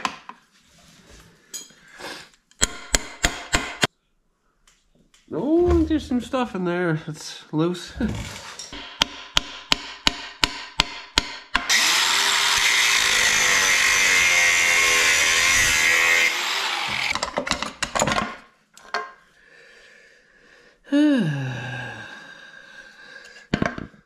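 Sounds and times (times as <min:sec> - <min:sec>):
angle grinder cutting metal: 0:11.6 - 0:17.2.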